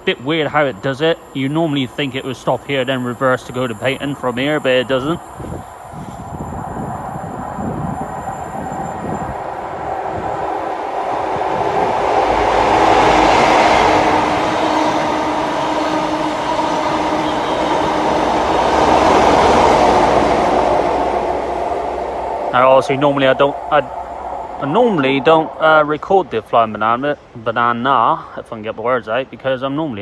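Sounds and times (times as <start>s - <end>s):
train engine drone: 0.0s - 28.4s
train wheel noise: 4.4s - 27.3s.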